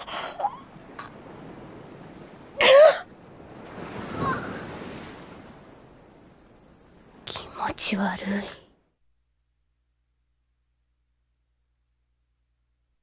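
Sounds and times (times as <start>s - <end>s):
waves washing on shore: 0.0s - 7.9s
surf hiss: 0.0s - 8.8s.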